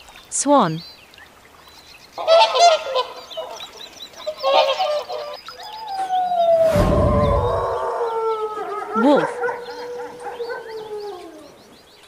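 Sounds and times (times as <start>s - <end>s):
swan honking: 2.2s - 3.6s, 4.3s - 5.4s
wolf howl: 5.6s - 11.8s
loud low rumble: 6.5s - 8.2s.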